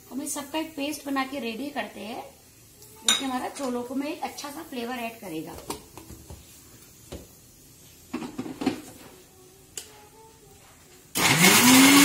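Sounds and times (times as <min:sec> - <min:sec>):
mixer grinder motor whirring: 0:11.2 - 0:12.0.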